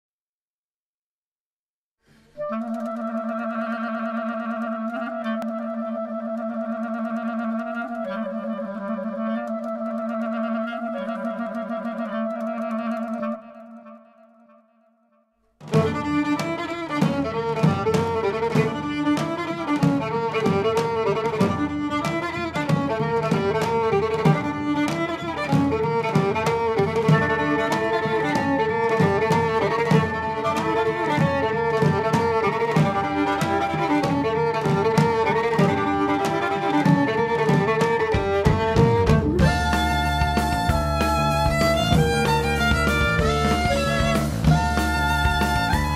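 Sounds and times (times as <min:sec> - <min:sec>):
clarinet melody: 0:02.3 - 0:45.9
drum beat: 0:15.6 - 0:45.9
double bass: 0:38.6 - 0:45.9.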